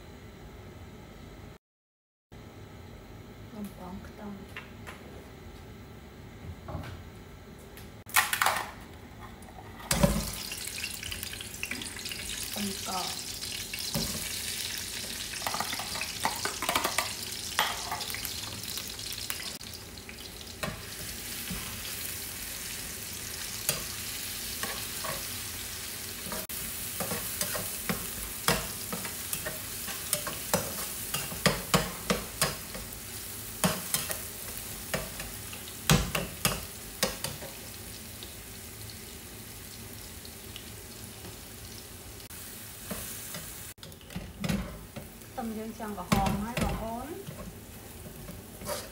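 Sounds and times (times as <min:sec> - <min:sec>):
noodles sizzling in oil: 0:09.9 - 0:48.9.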